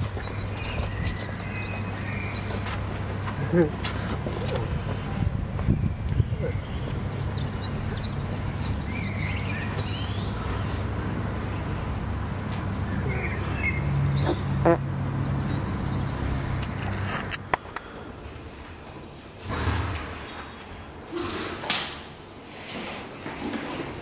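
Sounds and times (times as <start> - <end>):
small birds chirping: 0.0 - 11.9, 12.8 - 17.3.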